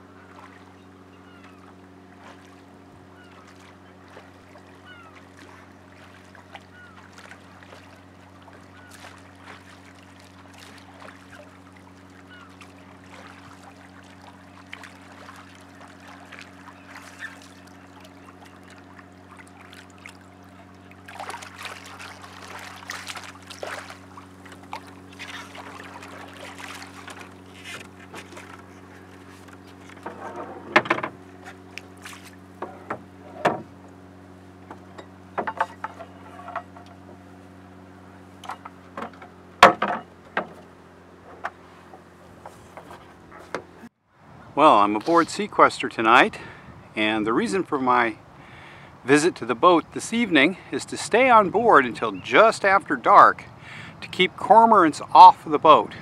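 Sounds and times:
steady low hum: 0:00.0 - 0:56.0
oars squeaking in oarlocks: 0:03.1 - 0:09.8, 0:10.6 - 0:13.7, 0:15.4 - 0:18.8, 0:21.4 - 0:33.8, 0:34.8 - 0:37.3
dinghy knocking against boat: 0:20.8 - 0:34.0, 0:34.6 - 0:37.2, 0:38.4 - 0:43.9.

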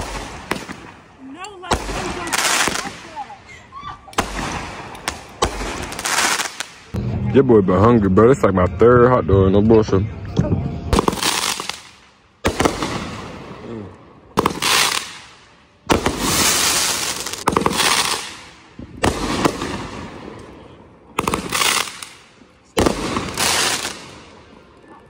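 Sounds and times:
fireworks bangs: 0:00.0 - 0:03.4, 0:04.1 - 0:07.0, 0:10.9 - 0:24.7.

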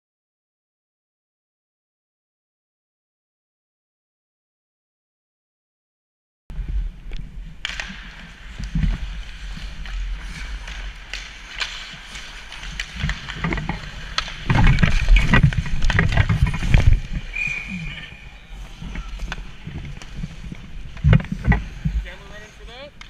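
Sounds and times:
goalie gear rustling: 0:06.6 - 0:23.0
sticks and puck clacking: 0:07.1 - 0:23.0
skate blades scraping ice: 0:07.6 - 0:23.0.

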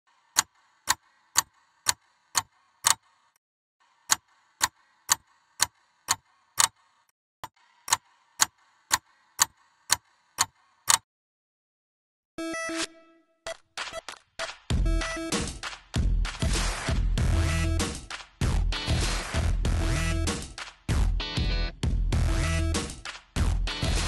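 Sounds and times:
clock ticking: 0:00.4 - 0:03.0, 0:07.9 - 0:11.0.

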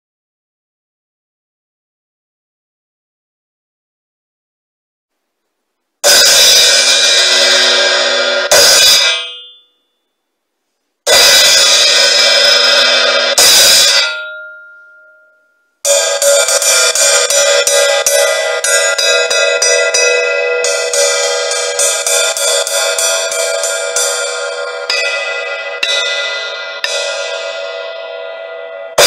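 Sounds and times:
hi-hat cymbal struck with drumstick: 0:06.0 - 0:09.3, 0:11.1 - 0:14.2, 0:15.9 - 0:28.1.

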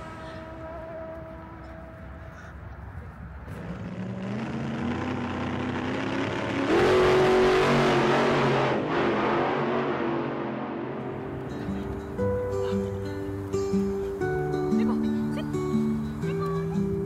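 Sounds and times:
race cars passing at speed: 0:03.4 - 0:12.1.

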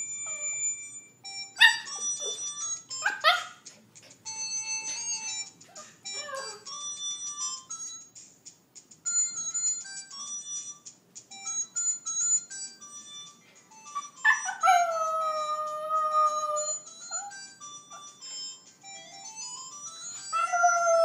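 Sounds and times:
cellphone ringtone melody: 0:00.0 - 0:08.3, 0:09.0 - 0:21.0
dog howling: 0:14.3 - 0:17.4, 0:20.3 - 0:21.0.

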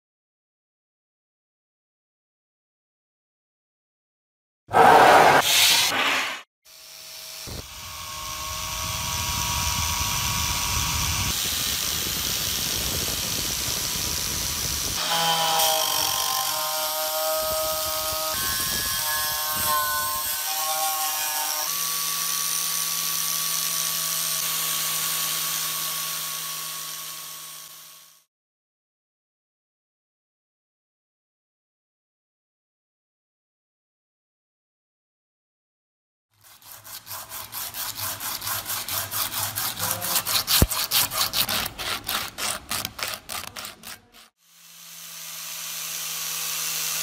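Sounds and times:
wire brush grinder on rusty iron: 0:04.8 - 0:28.3, 0:36.4 - 0:47.0.

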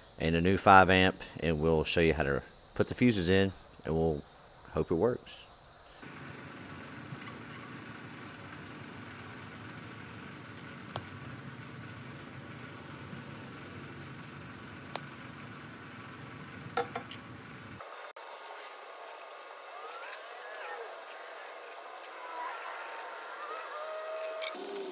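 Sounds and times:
background hiss: 0:00.0 - 0:24.9
insects chirping: 0:00.0 - 0:24.9
sharp clicks: 0:14.8 - 0:15.1.

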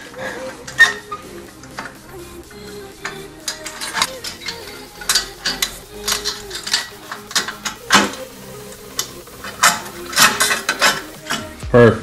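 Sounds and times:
metal clinks and scrapes: 0:03.0 - 0:11.6.

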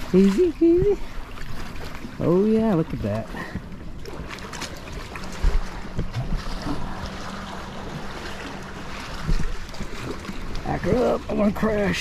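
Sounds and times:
waves splashing against kayak hull: 0:00.0 - 0:12.0
wind buffeting microphone: 0:00.1 - 0:12.0.

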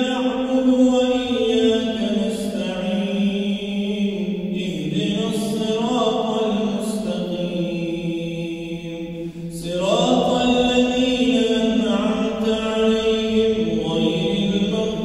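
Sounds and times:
man chanting prayer: 0:00.0 - 0:15.0.

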